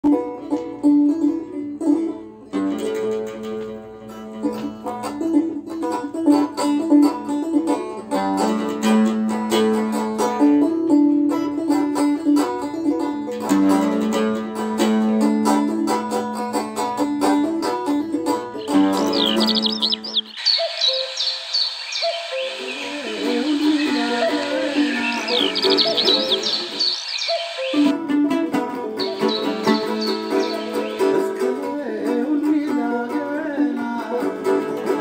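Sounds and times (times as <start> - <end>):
oud playing: 0.0 - 35.0
lyre plucked: 16.8 - 32.8.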